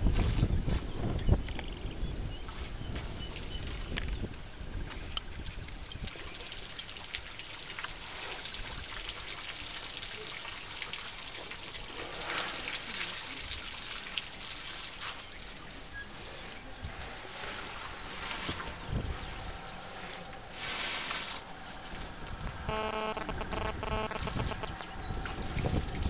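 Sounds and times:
water trickling and splashing: 2.5 - 22.7, 24.2 - 26.0
birds chirping: 22.5 - 25.5.

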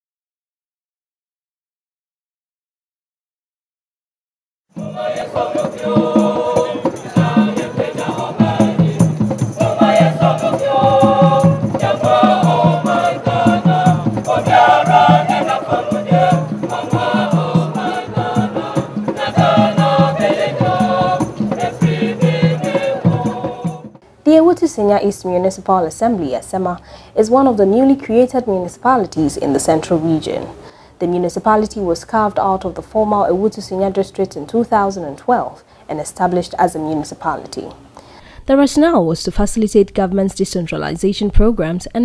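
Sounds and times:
shaker: 4.8 - 23.9
music with steady beat: 4.8 - 24.0
voices singing: 4.8 - 24.0.

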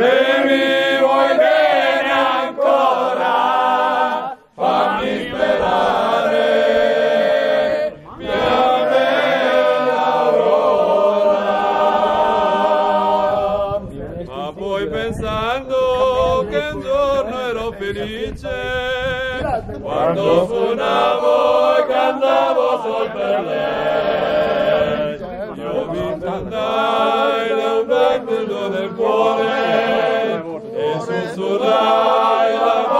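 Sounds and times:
men singing in chorus: 0.0 - 32.9.

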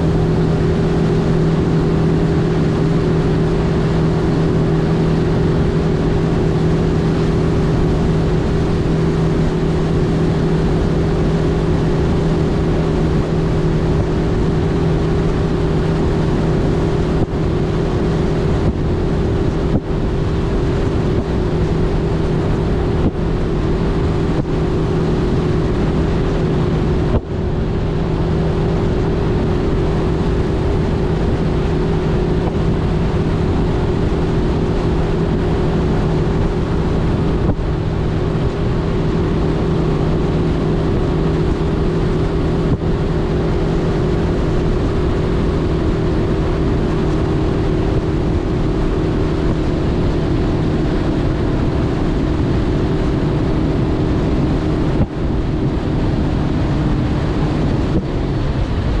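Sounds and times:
outboard motor droning: 0.0 - 59.0
wind on microphone: 0.0 - 59.0.

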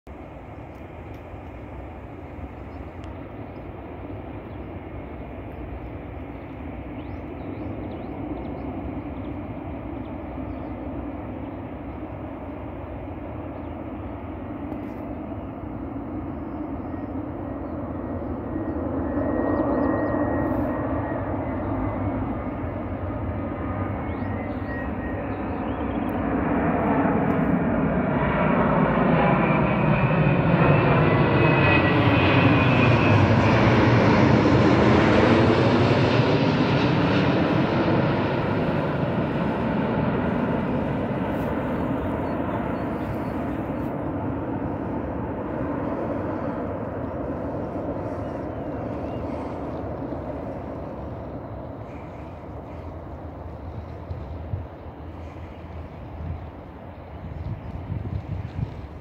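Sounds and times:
jet engine rumble: 0.1 - 59.0
faint steady whine: 37.4 - 59.0.

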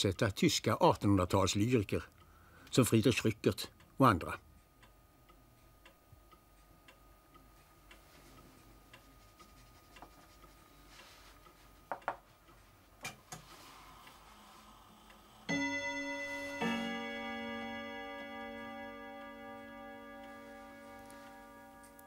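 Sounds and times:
clock ticking: 0.3 - 22.0
bell-like chime: 15.5 - 22.0.

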